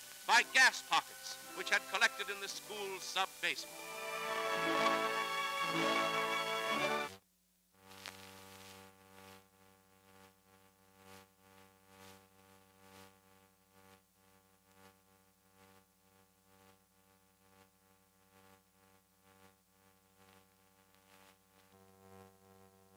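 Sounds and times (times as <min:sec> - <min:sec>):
faint electrical hum and hiss: 0:00.0 - 0:22.9.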